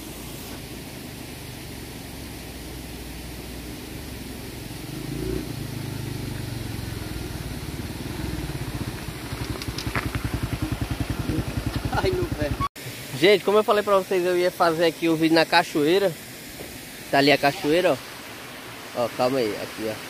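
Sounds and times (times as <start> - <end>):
motorcycle engine running: 4.2 - 12.7.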